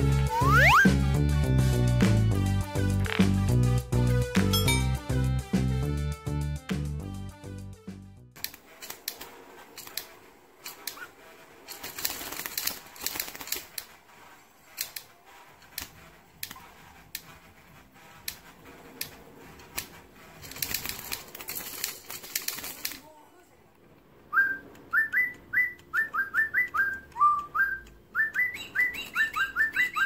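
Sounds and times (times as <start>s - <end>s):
fingertip tapping plastic toy: 18.2s - 23.1s, 24.6s - 30.0s.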